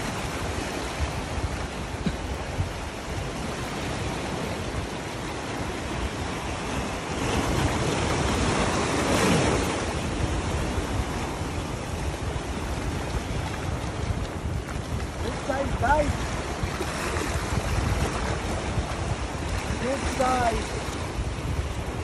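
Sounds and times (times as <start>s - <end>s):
sea waves breaking on rocks: 0.0s - 22.0s.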